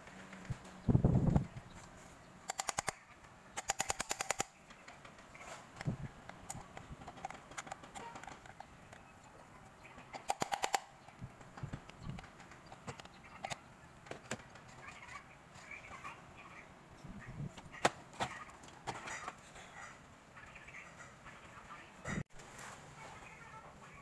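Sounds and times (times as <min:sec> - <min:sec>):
rapid sharp clicking: 0:03.6 - 0:04.6.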